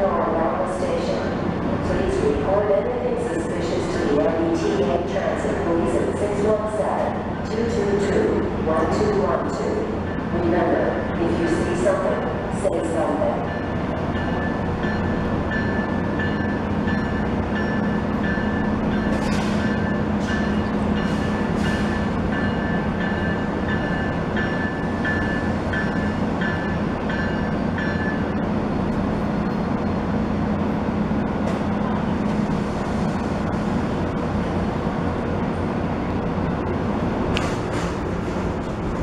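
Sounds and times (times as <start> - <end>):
diesel locomotive engines droning: 0.0 - 39.0
train bell ringing: 13.1 - 28.4.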